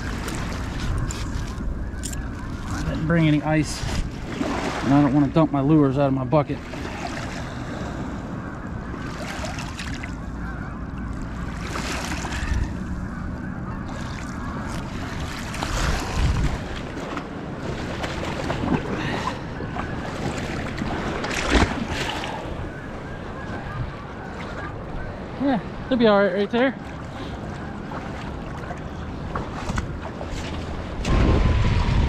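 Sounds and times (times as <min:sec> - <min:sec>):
small waves lapping: 0:00.0 - 0:32.0
wind on microphone: 0:12.3 - 0:26.0, 0:29.3 - 0:32.0
sharp splash in water: 0:31.0 - 0:32.0.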